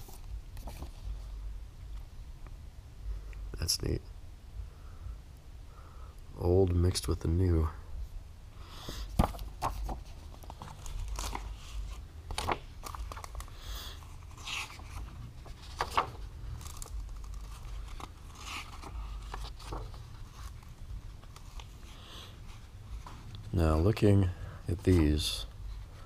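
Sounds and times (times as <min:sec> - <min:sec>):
paper rustling and crinkling: 0:00.0 - 0:01.4, 0:09.0 - 0:23.5.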